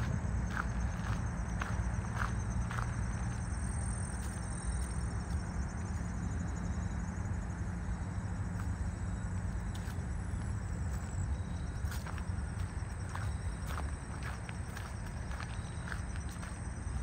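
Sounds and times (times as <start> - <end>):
footsteps on trail: 0.0 - 5.6, 9.6 - 17.0
insect fast pulsing chirp: 0.0 - 17.0.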